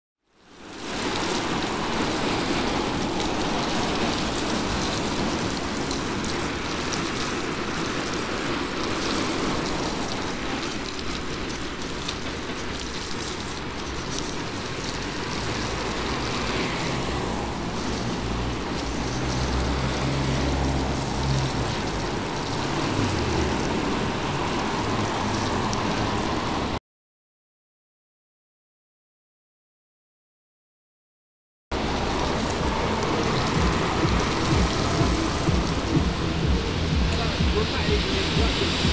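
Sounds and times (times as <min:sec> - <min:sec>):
tyre hiss on wet road: 0:00.4 - 0:26.8, 0:31.7 - 0:38.9
passing vehicle engine hum: 0:14.8 - 0:26.8, 0:31.7 - 0:38.9.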